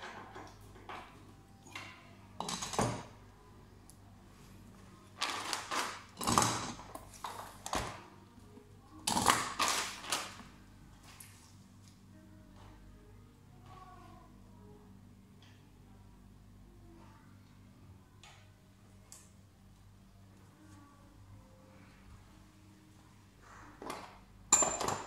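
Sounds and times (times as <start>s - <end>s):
faint low hum: 0.0s - 5.6s, 10.2s - 24.8s
tools and parts clattering: 23.9s - 25.0s.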